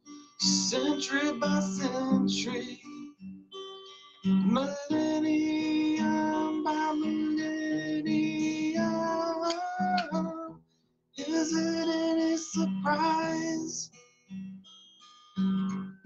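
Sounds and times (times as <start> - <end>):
fingerpicked acoustic guitar: 0.0 - 16.0
person singing long notes: 4.5 - 10.5, 11.2 - 13.8.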